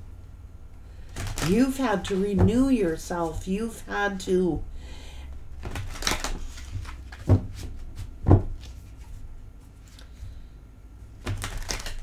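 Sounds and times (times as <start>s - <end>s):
cards shuffling: 1.1s - 2.3s, 5.6s - 10.2s, 11.2s - 12.0s
dull thumps: 7.2s - 8.6s.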